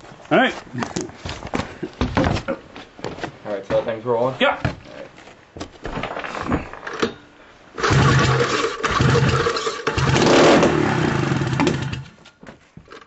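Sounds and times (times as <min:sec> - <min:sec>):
engine knocking and starting: 0:07.8 - 0:12.1.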